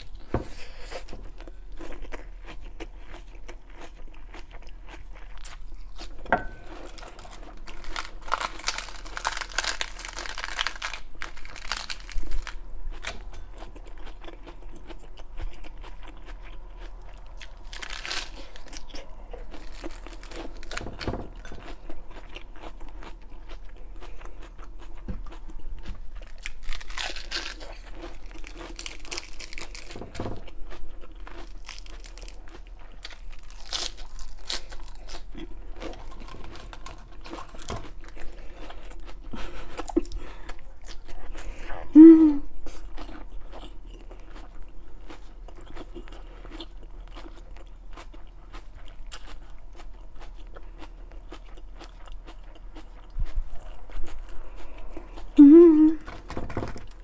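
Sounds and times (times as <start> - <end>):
lettuce being chewed and crunched: 0.0 - 57.0
lettuce leaves tearing: 6.8 - 13.2, 17.5 - 21.0, 26.2 - 30.0, 31.3 - 38.3.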